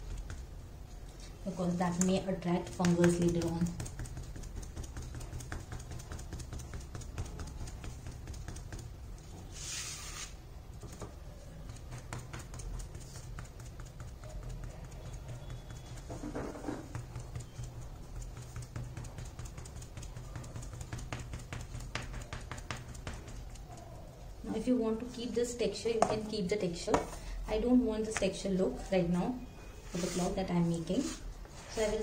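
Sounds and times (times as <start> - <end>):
sponge dabbing soft taps: 0.0 - 9.8, 10.8 - 23.8.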